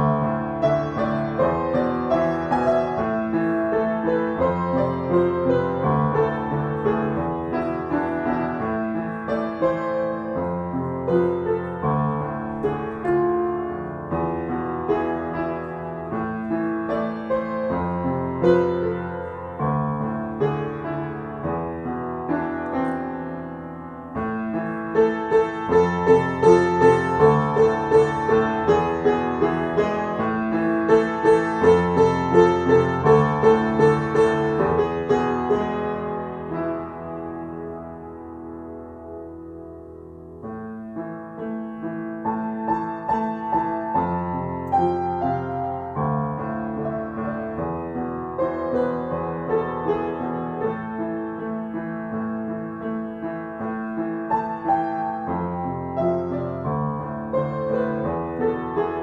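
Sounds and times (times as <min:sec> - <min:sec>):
slow piano piece: 0:00.0 - 0:59.0.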